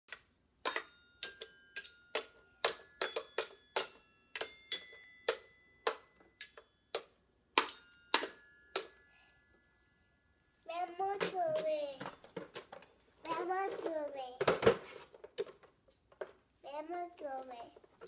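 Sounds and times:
toy xylophone notes: 0:00.6 - 0:12.2.

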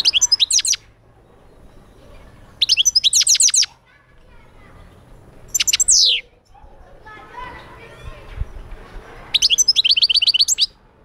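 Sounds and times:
goldfinch twittering: 0:00.0 - 0:00.8, 0:02.6 - 0:03.7, 0:05.5 - 0:06.2, 0:09.4 - 0:10.7.

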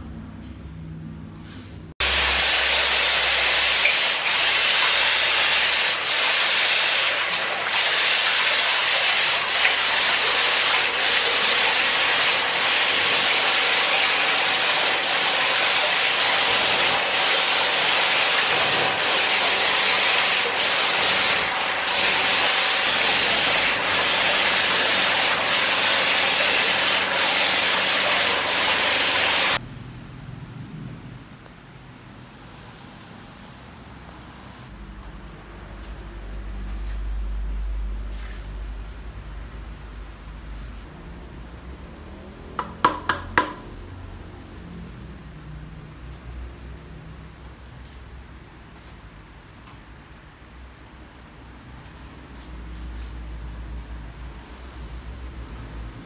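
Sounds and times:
paint spray gun hissing: 0:02.0 - 0:29.6.

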